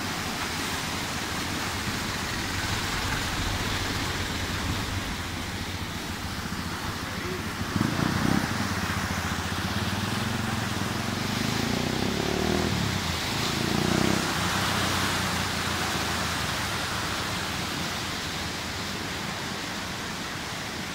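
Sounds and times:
river rushing: 0.0s - 20.9s
low rumble: 1.1s - 7.8s.

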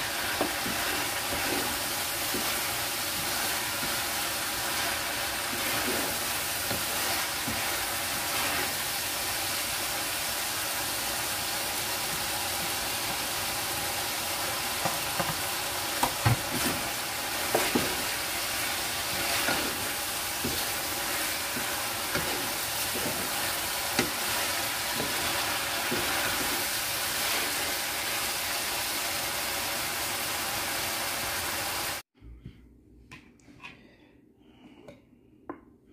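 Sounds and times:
wooden spatula scraping a pan: 0.0s - 9.5s, 14.8s - 27.8s
food sizzling in a frying pan: 0.0s - 32.0s.

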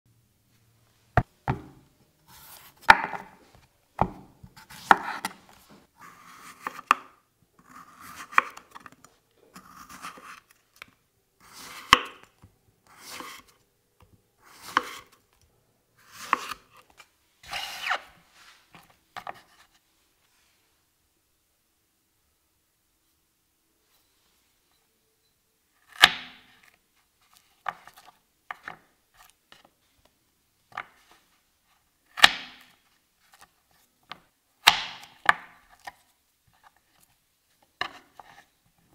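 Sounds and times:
knife slicing vegetable on board: 4.0s - 5.4s, 7.6s - 8.9s, 9.5s - 10.5s, 12.9s - 13.5s, 14.4s - 15.2s, 16.0s - 16.7s.

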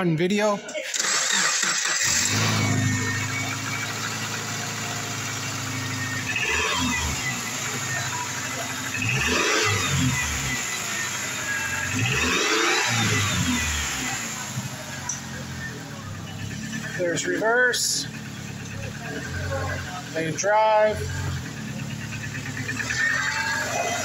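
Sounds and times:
car engine starting and idling: 0.7s - 24.0s.

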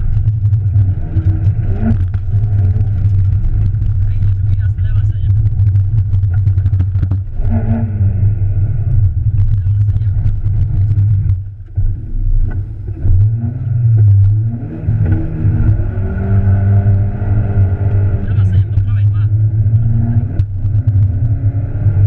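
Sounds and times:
rally car engine revving: 0.0s - 22.0s.

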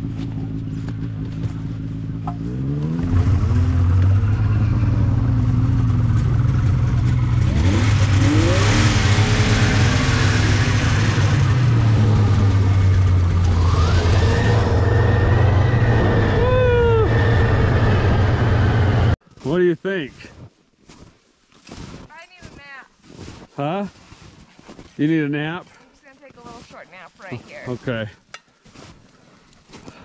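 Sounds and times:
snowmobile engine running: 0.0s - 19.2s
rising whine: 2.2s - 19.2s.

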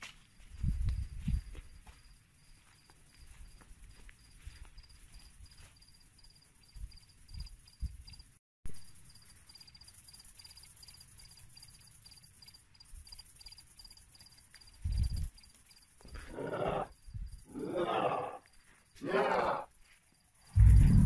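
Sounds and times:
cricket chirping: 0.0s - 21.0s
dull low thumps: 20.6s - 21.0s.

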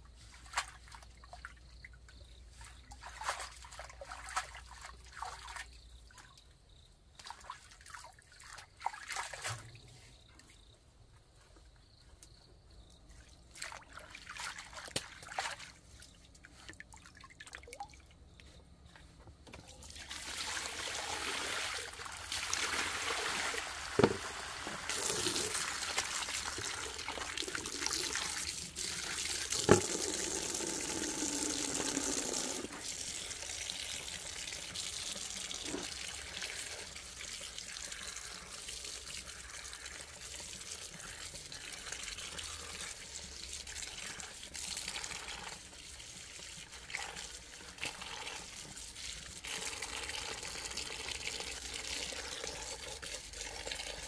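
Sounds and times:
water running and trickling: 19.7s - 54.0s.

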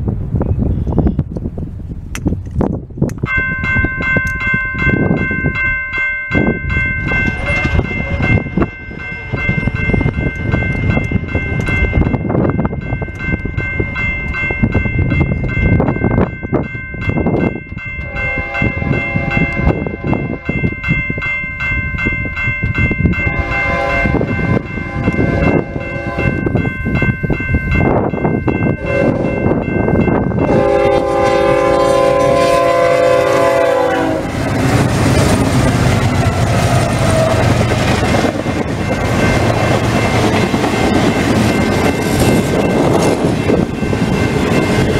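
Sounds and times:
locomotive engines and wheels rumbling: 0.0s - 44.9s
grade crossing bell ringing: 3.2s - 44.9s
train air horn blasts: 7.2s - 8.4s, 18.0s - 20.5s, 23.2s - 26.4s, 28.8s - 29.4s, 30.4s - 34.4s.

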